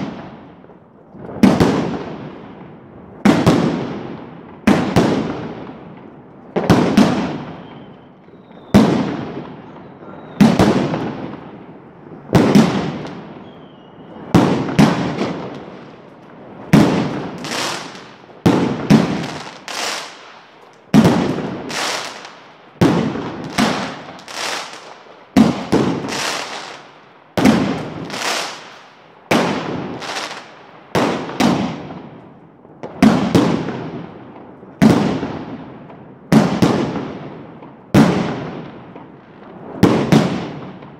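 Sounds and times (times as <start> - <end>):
fireworks bangs with rolling echo: 0.0 - 40.9.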